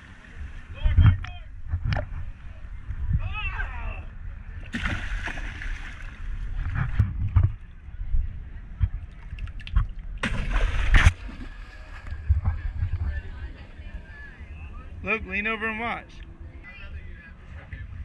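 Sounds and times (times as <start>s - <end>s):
fish splashing in water: 10.2s - 12.0s.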